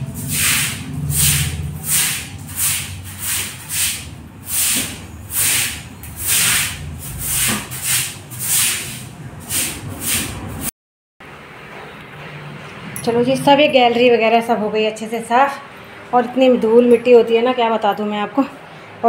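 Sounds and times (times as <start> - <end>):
broom sweeping wet tiled floor: 0.0 - 10.7.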